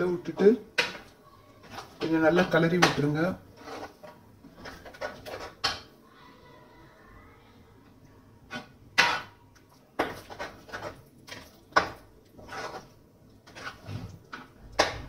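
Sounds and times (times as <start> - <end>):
spoon scraping heavy pot: 0.8 - 5.9, 10.0 - 15.0.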